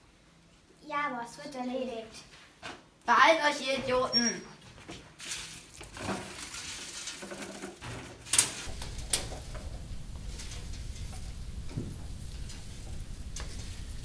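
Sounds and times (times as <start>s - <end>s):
low steady hum: 8.7s - 14.0s.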